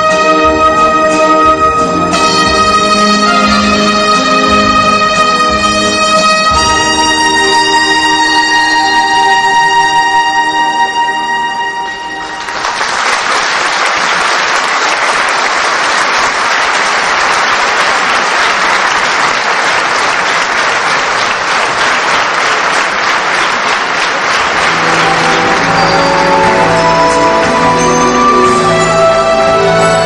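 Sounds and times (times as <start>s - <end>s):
audience applauding: 12.1s - 30.0s
dance music: 24.5s - 30.0s.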